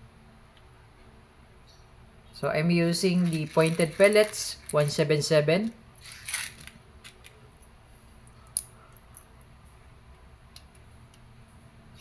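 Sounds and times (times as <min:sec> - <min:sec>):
pellets clicking into magazine: 0:06.0 - 0:07.4.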